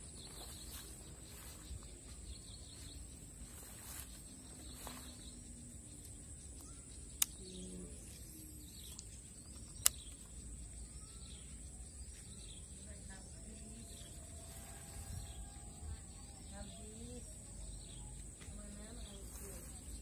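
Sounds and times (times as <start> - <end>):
faint bird chirps: 0.0 - 20.0
sharp clicks: 6.0 - 7.6, 8.8 - 10.4.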